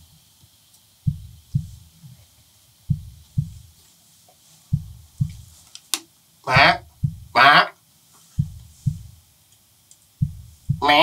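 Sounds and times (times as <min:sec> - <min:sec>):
heartbeat thumps: 0:01.0 - 0:02.1, 0:02.8 - 0:03.8, 0:04.7 - 0:05.6, 0:06.5 - 0:07.6, 0:08.4 - 0:09.3, 0:10.2 - 0:11.0.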